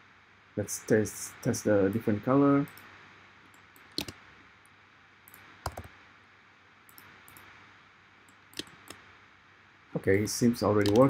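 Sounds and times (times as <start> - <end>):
faint steady hiss: 0.0 - 11.0
mouse and key clicks: 3.5 - 4.2, 8.3 - 9.0, 10.8 - 11.0.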